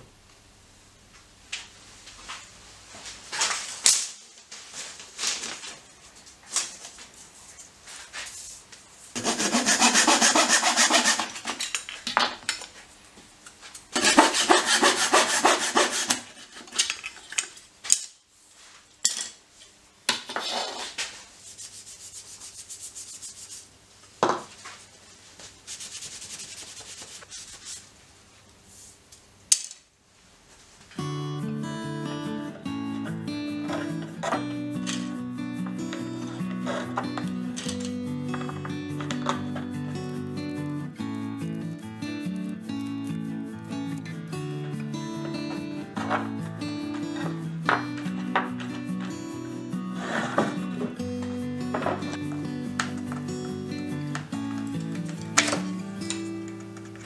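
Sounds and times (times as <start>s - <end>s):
sandpaper rubbing wood: 9.2s - 11.6s, 14.0s - 16.8s, 20.7s - 23.8s, 25.5s - 27.9s, 48.0s - 51.0s
hand saw cutting wood: 9.2s - 11.7s, 14.0s - 16.9s, 50.0s - 50.8s.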